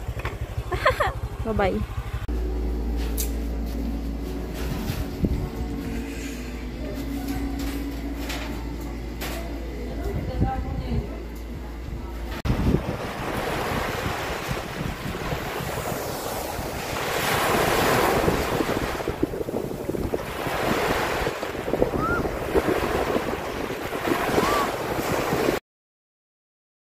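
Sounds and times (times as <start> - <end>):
wind buffeting microphone: 4.6 - 6.0, 10.1 - 25.6
small waves breaking on beach: 12.6 - 25.6.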